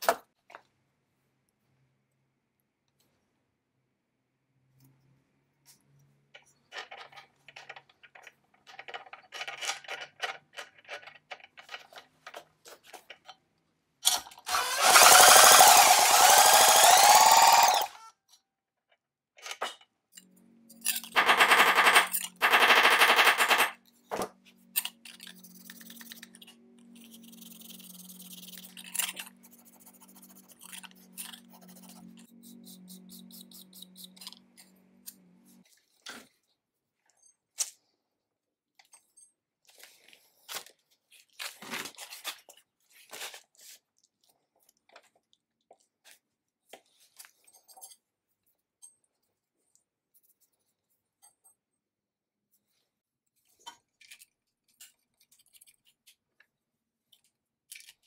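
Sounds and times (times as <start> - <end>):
two-stroke engine running: 14.6 - 18.0.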